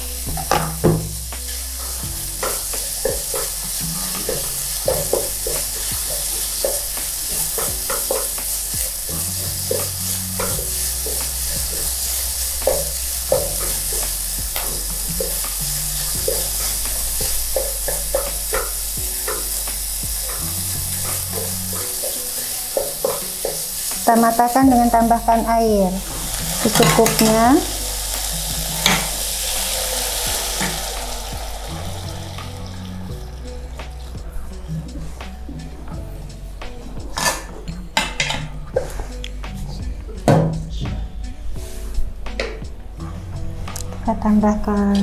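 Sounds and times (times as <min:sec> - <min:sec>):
food sizzling in oil: 0:00.0 - 0:35.7
spatula scraping and clicking on pan: 0:02.4 - 0:08.6.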